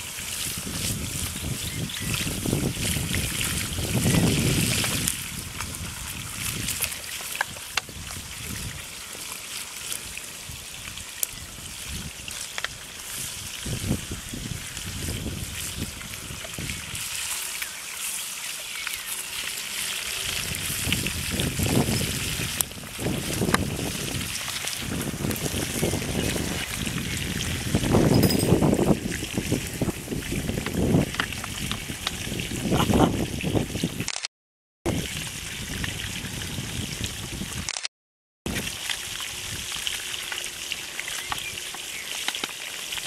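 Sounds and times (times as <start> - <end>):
wind on microphone: 0.0 - 8.9, 11.4 - 12.2, 13.1 - 17.3, 20.2 - 34.1, 34.9 - 37.8
fish sizzling in hot oil: 0.0 - 27.9, 38.5 - 43.0.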